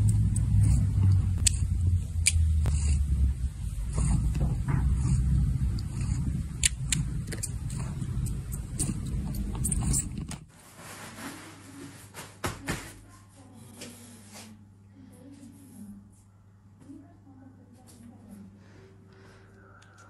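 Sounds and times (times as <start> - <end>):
cat purring: 0.0 - 10.5
cat sucking paw clicks: 5.0 - 10.1
soft rustling: 7.4 - 14.6.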